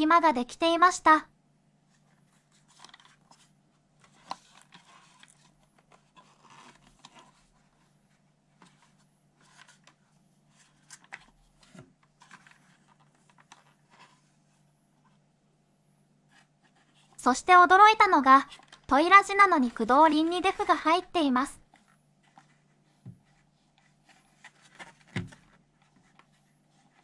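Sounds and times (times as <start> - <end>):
low steady hum: 0.0 - 27.0
fingers handling plastic toy: 2.3 - 7.7.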